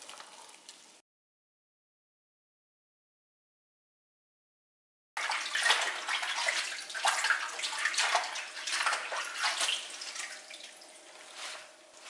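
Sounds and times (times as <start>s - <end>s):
water splashing and sloshing: 5.2s - 12.0s.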